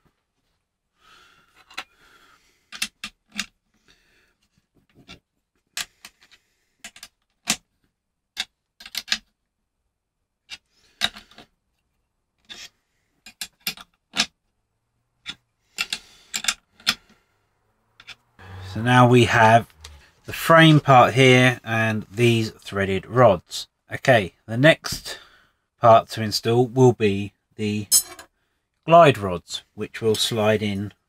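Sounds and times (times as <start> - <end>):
metallic clicks of nuts tightening: 15.2 - 17.1.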